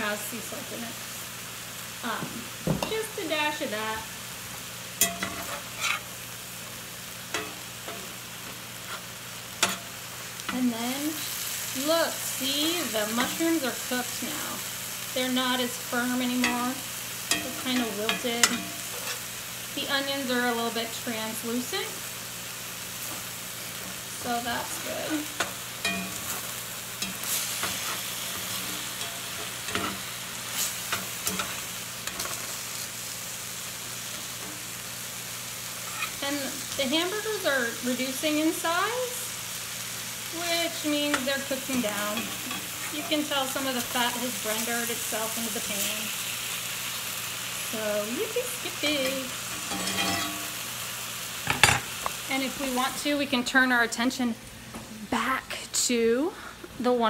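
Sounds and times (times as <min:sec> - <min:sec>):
food sizzling in skillet: 0:00.0 - 0:57.0
spatula scraping and knocking pan: 0:05.0 - 0:06.1, 0:25.4 - 0:32.5
spatula knocking and scraping pan: 0:17.3 - 0:19.2.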